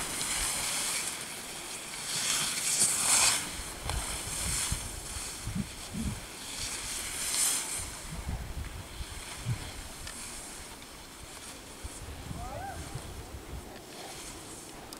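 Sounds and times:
skis swishing on snow: 0.0s - 14.9s
wind on microphone: 3.4s - 14.9s.

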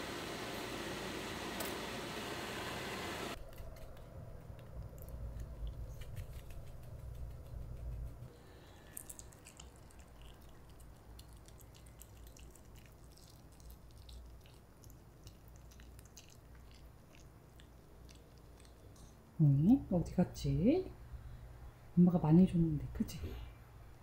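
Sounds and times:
dog chewing cabbage leaf: 8.9s - 19.1s.

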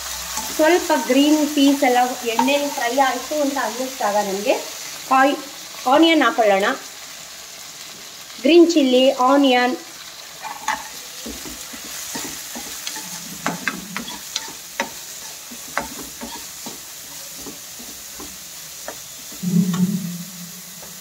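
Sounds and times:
oil sizzling in a pan: 0.0s - 21.0s
spoon scraping against pan: 10.4s - 21.0s
low hum: 19.4s - 21.0s.

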